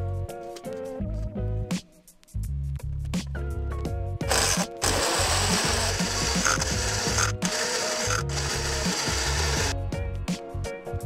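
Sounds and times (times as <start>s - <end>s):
blender motor whirring: 4.3s - 9.8s.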